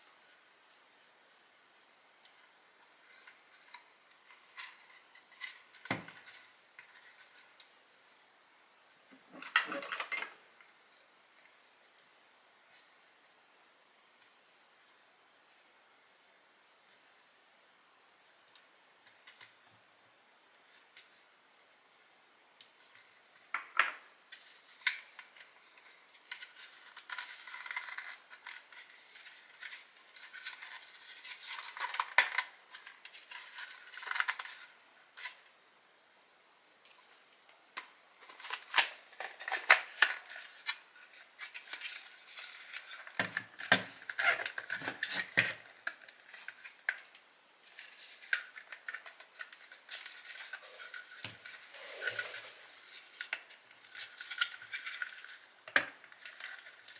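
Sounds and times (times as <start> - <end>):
scraping and rubbing: 47.7 - 55.5.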